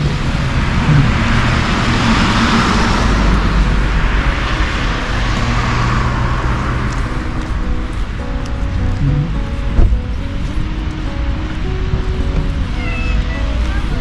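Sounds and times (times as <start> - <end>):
low traffic rumble: 0.0 - 14.0
tyre hiss on wet road: 5.4 - 14.0.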